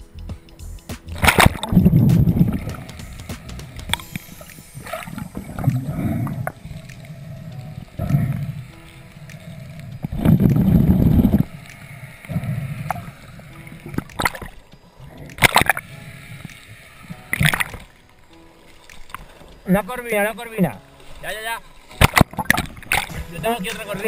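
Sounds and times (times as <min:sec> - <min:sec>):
sharp clicks underwater: 0:00.9 - 0:21.2, 0:21.9 - 0:24.0
underwater gurgling rush of water: 0:01.2 - 0:18.0, 0:21.9 - 0:23.8.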